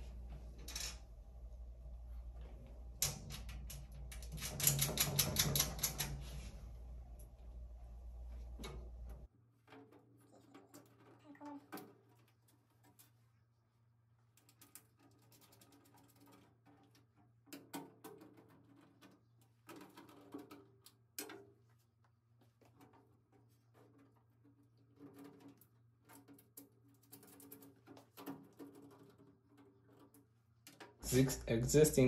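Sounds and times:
faint low hum: 0.0s - 9.3s.

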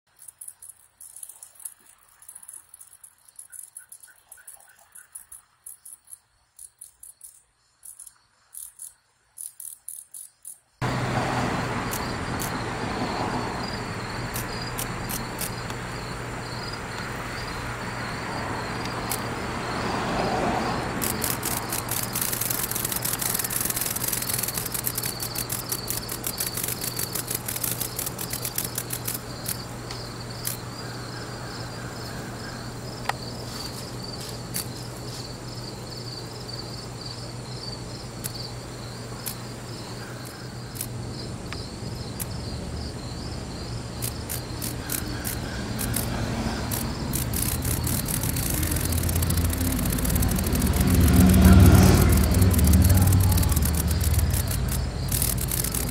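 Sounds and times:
insects chirping: 0.1s - 55.9s
dense high clicking: 14.2s - 15.9s, 20.9s - 30.6s, 44.0s - 55.9s.

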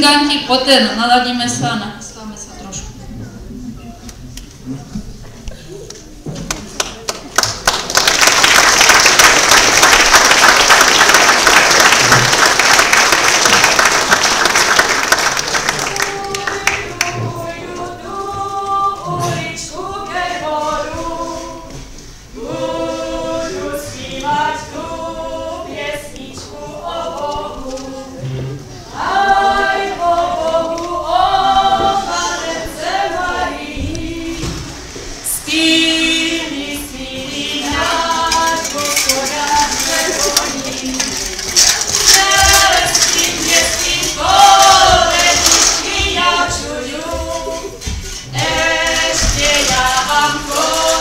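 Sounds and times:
choir singing a carol: 9.1s - 51.0s.

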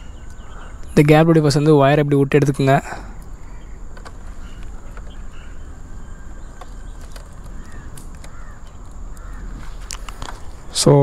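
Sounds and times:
faint bird calls: 0.0s - 2.0s, 2.6s - 10.8s
outdoor background noise: 0.0s - 11.0s
electrical wires clicking and rustling: 2.6s - 11.0s.

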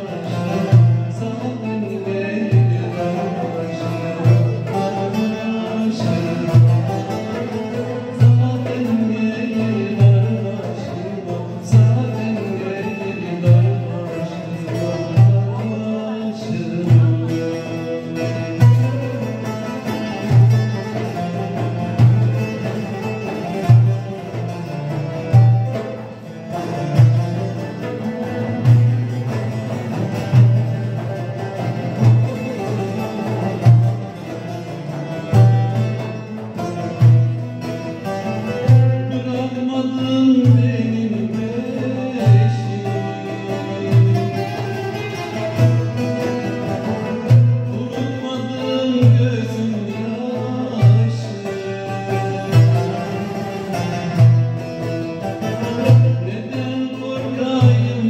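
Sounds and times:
long-necked lutes playing: 0.0s - 58.0s
deep drum beat: 16.6s - 39.1s.

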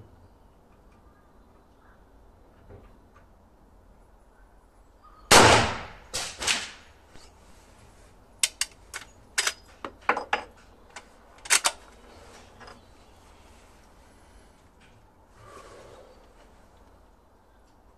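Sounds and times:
rifle shot: 5.3s - 6.9s
rifle action clicking: 8.4s - 9.6s, 11.0s - 11.8s.

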